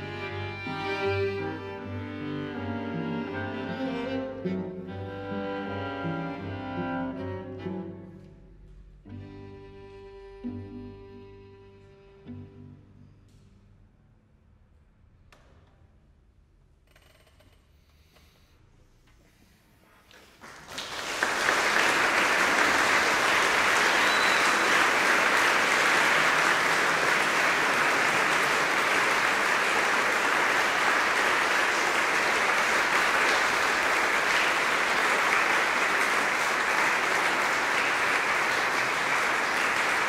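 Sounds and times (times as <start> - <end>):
audience applauding: 20.1 - 40.0.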